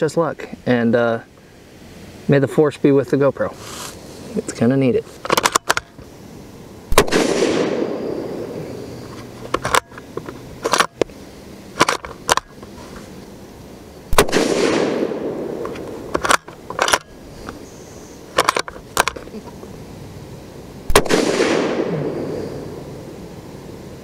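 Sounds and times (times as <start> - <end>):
metallic rifle bolt clicks: 5.3 - 5.9, 9.1 - 11.0, 15.6 - 17.1, 18.4 - 19.2
rifle shots with long echo: 6.9 - 9.0, 14.1 - 16.1, 20.9 - 22.8.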